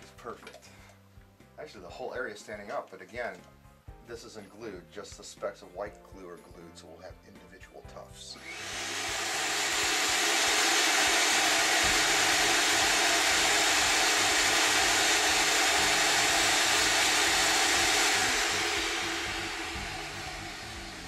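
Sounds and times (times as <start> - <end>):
vacuum cleaner running: 8.3 - 21.0.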